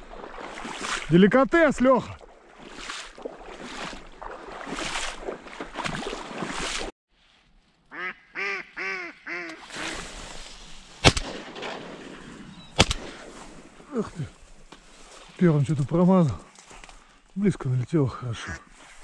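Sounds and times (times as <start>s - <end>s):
wind and reed noise: 0.0s - 19.0s
duck quacking: 7.9s - 9.6s
loud shotgun shot: 11.0s - 12.0s, 12.8s - 13.2s.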